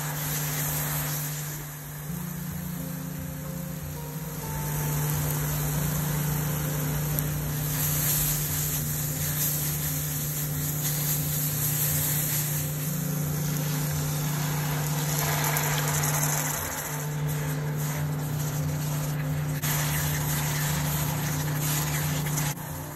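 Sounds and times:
constant low hum: 0.0 - 22.9
paste sizzling in frying pan: 0.0 - 22.9
spatula stirring: 4.7 - 22.9.

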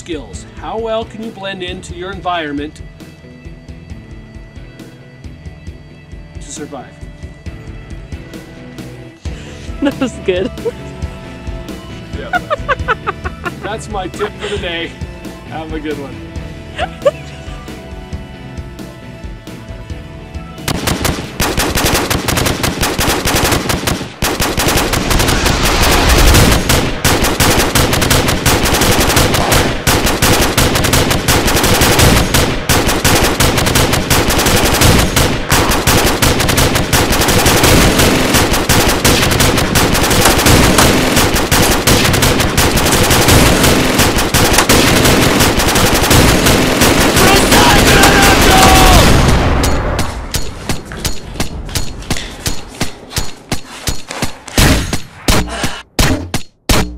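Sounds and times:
automatic gunfire: 20.7 - 50.8.

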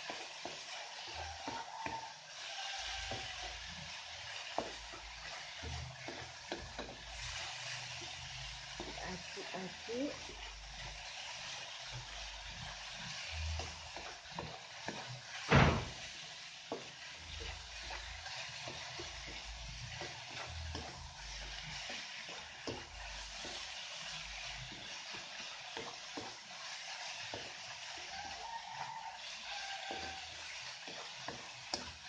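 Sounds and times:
cooking hiss: 0.0 - 32.0
spatula knocking on wok: 4.4 - 7.0, 29.9 - 32.0
spatula scraping coconut: 16.7 - 32.0.

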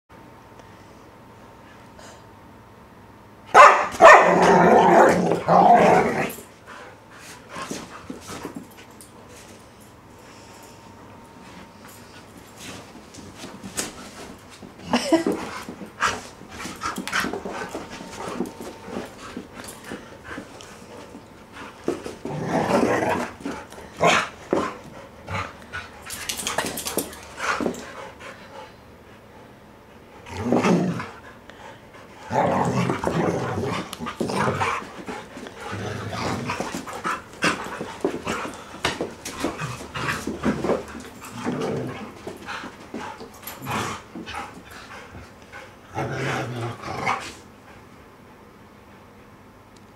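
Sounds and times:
dogs barking: 3.5 - 4.4
dogs growling: 4.2 - 6.5, 16.8 - 26.5, 30.2 - 31.3, 32.2 - 47.4.

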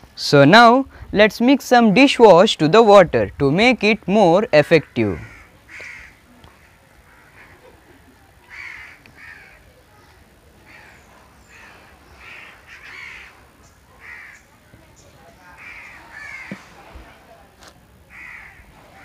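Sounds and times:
crows cawing: 5.0 - 7.8, 8.5 - 9.7, 10.6 - 14.5, 15.5 - 16.7, 18.1 - 19.0.

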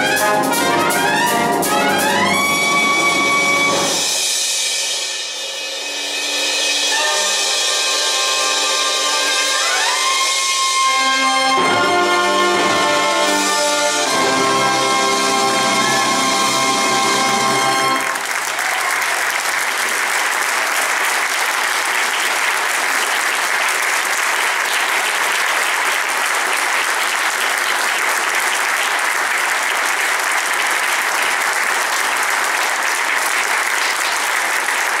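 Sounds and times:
audience applauding: 15.8 - 35.0.

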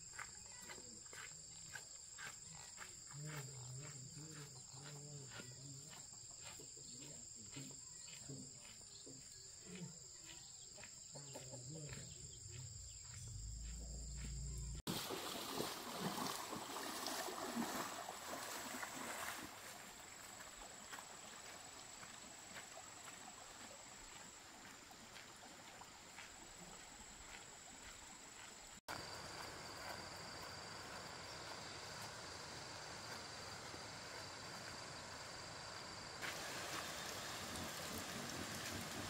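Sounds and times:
high insect drone: 0.0 - 39.0
stream running water: 14.2 - 39.0
splashing while wading: 14.9 - 25.8, 36.2 - 39.0.

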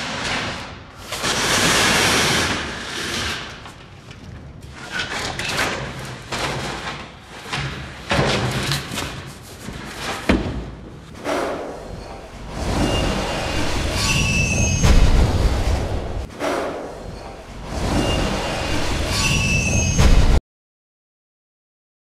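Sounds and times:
knocks and clatter: 3.7 - 18.3.

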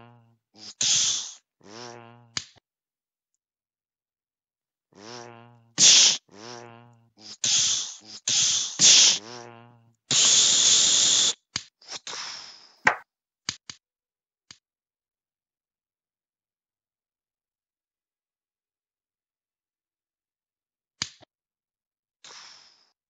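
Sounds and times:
hissed bursts: 0.6 - 1.4, 5.8 - 6.3, 7.2 - 9.3, 10.1 - 13.0
mouth-made lightsaber hums: 5.0 - 11.4.

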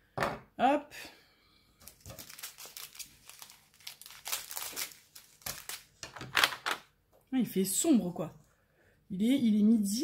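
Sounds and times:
plastic bags crinkling: 1.8 - 6.8.

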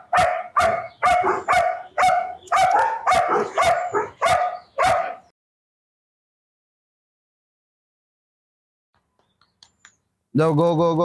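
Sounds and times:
dog barking: 0.0 - 5.3.

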